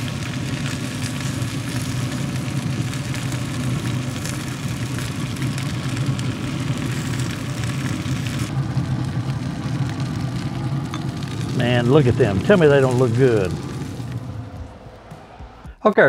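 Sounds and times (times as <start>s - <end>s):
fan humming: 0.0s - 16.0s.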